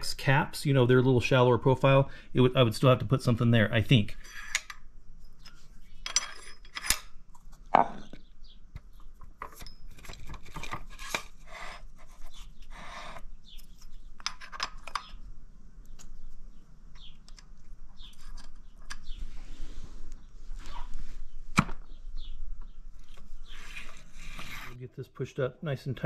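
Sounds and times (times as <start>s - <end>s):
scraping and rubbing: 9.4s - 15.2s, 23.0s - 24.8s.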